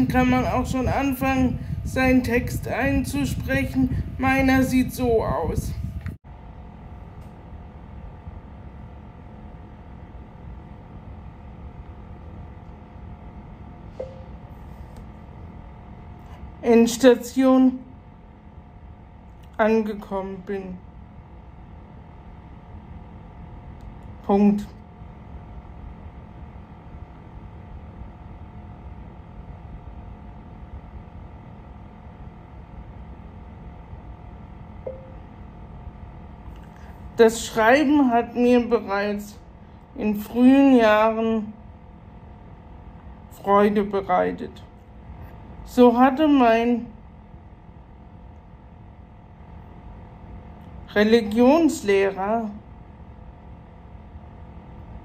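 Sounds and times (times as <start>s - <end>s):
faint hum: 0.0s - 55.0s
low room rumble: 0.0s - 55.0s.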